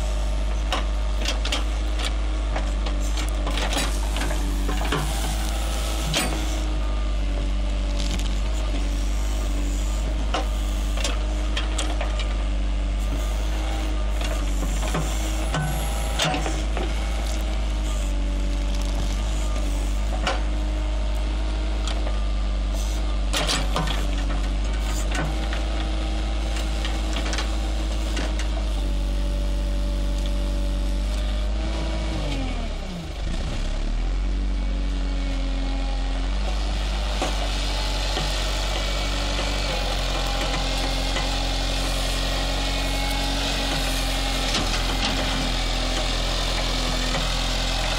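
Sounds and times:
diesel engine running: 0.0 - 47.9.

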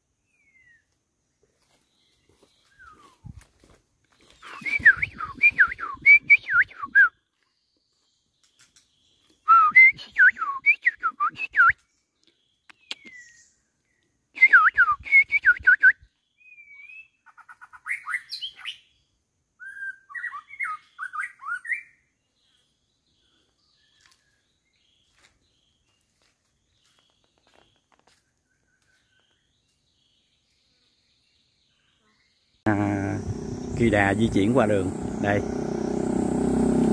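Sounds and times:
bird whistled song: 0.2 - 0.9, 2.4 - 3.4, 4.2 - 7.3, 8.4 - 12.0, 12.7 - 19.0, 19.6 - 25.7
soft bird calls: 1.5 - 6.0, 11.8 - 14.2, 19.7 - 36.8.

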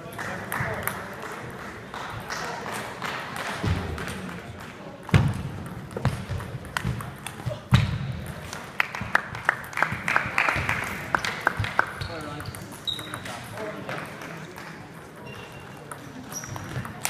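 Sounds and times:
chatter in a large hall: 0.0 - 17.0
ping-pong ball clicking off bats: 5.0 - 7.5, 9.4 - 17.0
ping-pong ball bouncing to rest: 15.0 - 17.0.

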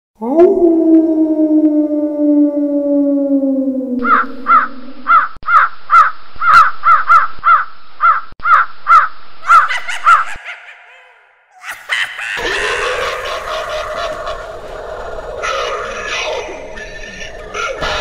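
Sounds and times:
low falling tone: 0.2 - 5.1
crows cawing: 4.0 - 9.6, 12.2 - 18.0.

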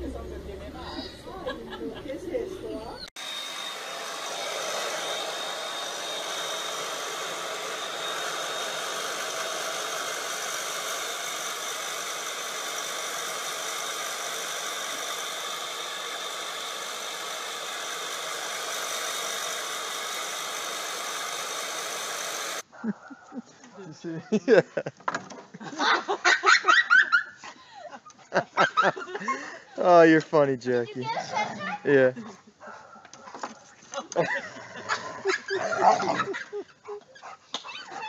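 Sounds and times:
hair dryer running: 3.1 - 22.7.

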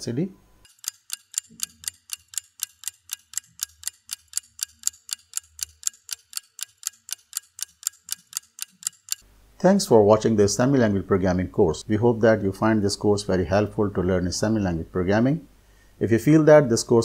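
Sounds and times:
rapid ticking: 0.6 - 9.2.

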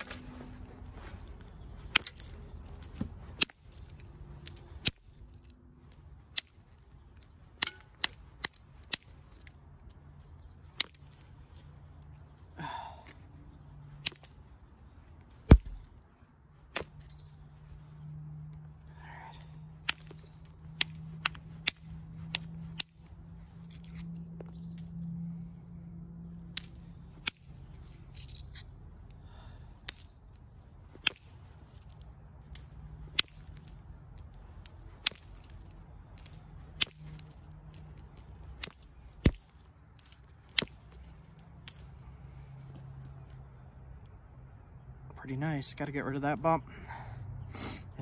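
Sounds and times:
billet striking stone: 15.4 - 15.9.

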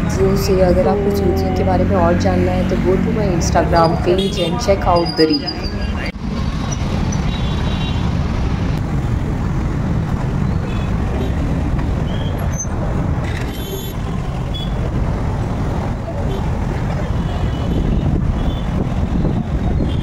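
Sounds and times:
traffic engines rumbling: 0.0 - 20.0
short high beeps: 4.8 - 6.1.

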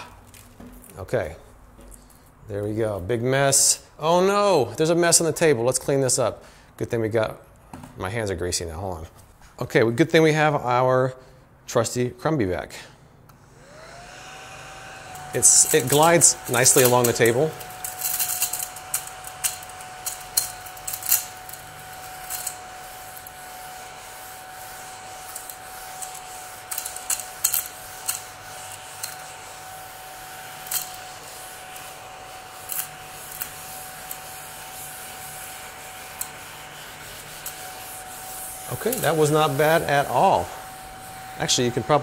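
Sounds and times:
mini vacuum whining: 13.3 - 42.0
brushes rubbing a table: 15.1 - 42.0.

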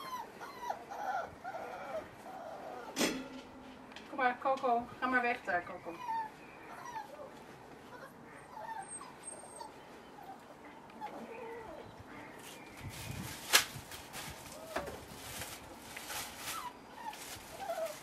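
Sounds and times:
puppies whimpering and yipping: 0.0 - 3.0, 5.7 - 12.0, 16.4 - 18.0.

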